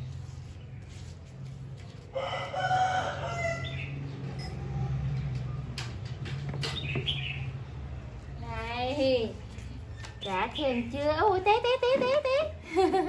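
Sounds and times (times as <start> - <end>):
rooster crowing: 2.1 - 3.9.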